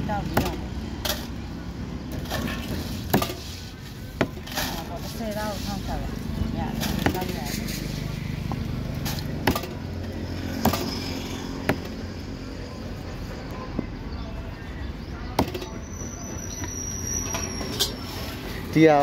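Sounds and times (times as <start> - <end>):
cleaver chopping on wooden block: 10.6 - 11.0, 11.6 - 12.0.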